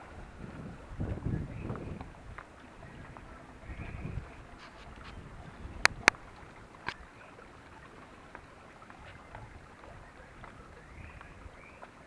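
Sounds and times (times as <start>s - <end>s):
footsteps on rocks: 4.6s - 5.3s.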